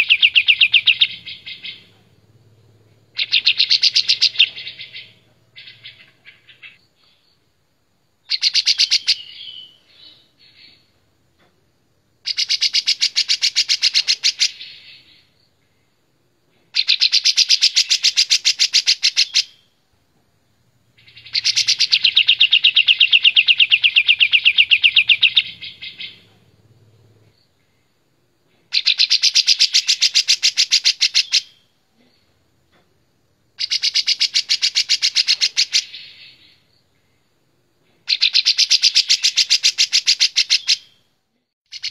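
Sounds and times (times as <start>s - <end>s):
bird singing rapid notes: 0.0s - 6.8s, 8.3s - 10.8s, 21.0s - 26.5s, 28.7s - 31.6s, 33.6s - 36.7s, 38.1s - 41.0s, 41.7s - 41.9s.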